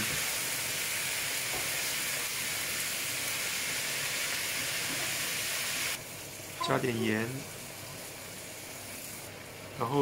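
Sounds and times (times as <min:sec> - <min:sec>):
food sizzling in a frying pan: 0:00.0 - 0:10.0.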